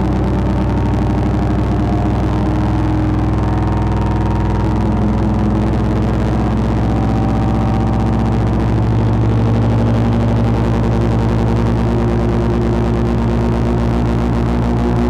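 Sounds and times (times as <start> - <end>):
distorted synthesizer drone: 0.0 - 15.0.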